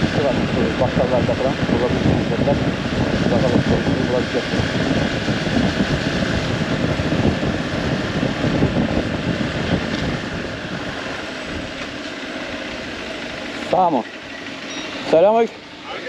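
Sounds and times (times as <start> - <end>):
wind noise on microphone: 0.0 - 12.0
motorcycle engine running: 0.0 - 16.0.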